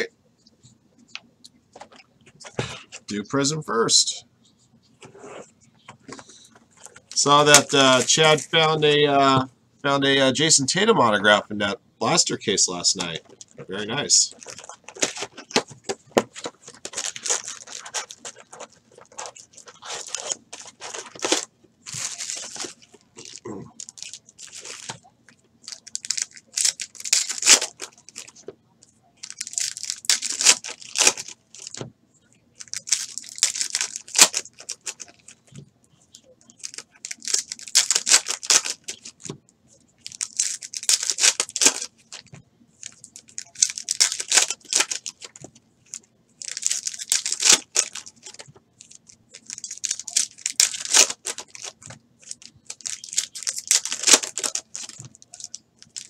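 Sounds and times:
foil wrappers crinkling and tearing: 6.3 - 8.8, 12.8 - 28.5, 29.2 - 31.8, 32.6 - 35.4, 36.5 - 39.3, 40.0 - 56.0.

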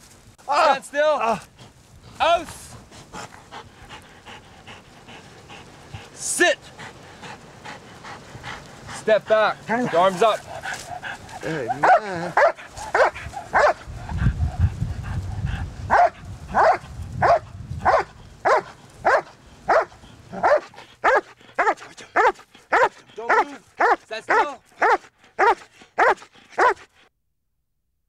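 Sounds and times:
dog barking: 11.6 - 13.8, 15.9 - 26.8.

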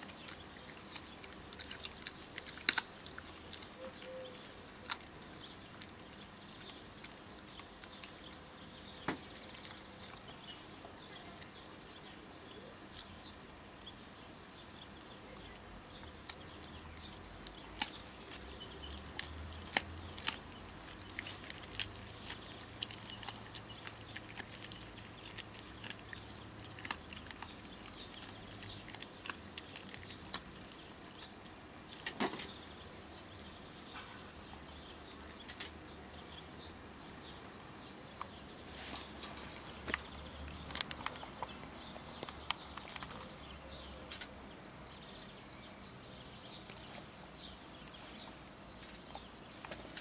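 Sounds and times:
dog crunching a bone: 0.0 - 11.6, 16.0 - 32.7, 39.1 - 43.4.

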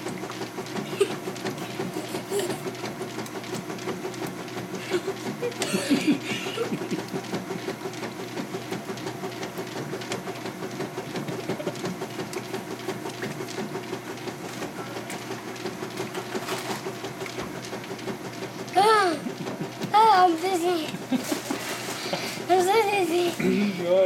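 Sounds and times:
washing machine churning water: 0.0 - 24.0.

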